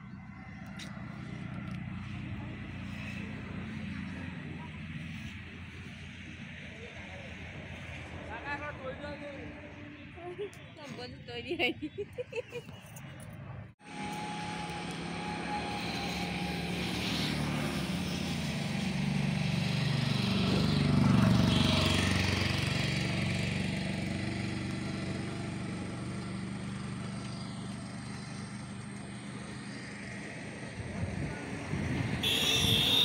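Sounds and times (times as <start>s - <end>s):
motor droning: 13.8s - 21.0s, 32.2s - 33.0s.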